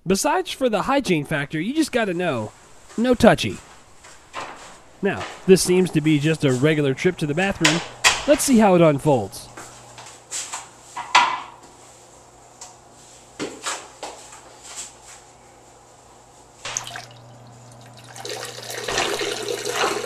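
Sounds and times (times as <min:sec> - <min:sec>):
faint hum: 0:00.0 - 0:10.3.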